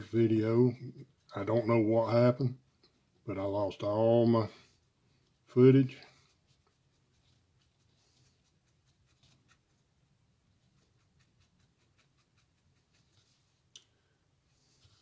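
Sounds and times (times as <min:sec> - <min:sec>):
wooden stick scratching and tapping: 0:10.5 - 0:13.9.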